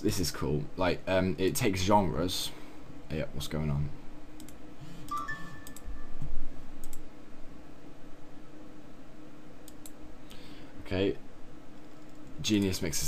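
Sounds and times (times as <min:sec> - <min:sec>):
steady low hum: 0:00.0 - 0:13.0
computer mouse clicking: 0:04.4 - 0:05.9, 0:06.8 - 0:07.0, 0:09.6 - 0:10.0
electronic two-note tone: 0:05.1 - 0:06.2.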